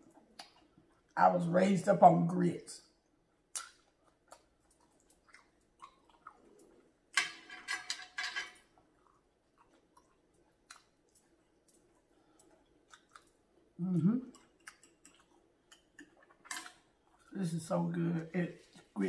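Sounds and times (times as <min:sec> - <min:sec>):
person chewing: 0:00.0 - 0:01.2, 0:03.0 - 0:07.2, 0:08.6 - 0:17.4
wet mouth clicks: 0:03.5 - 0:06.7.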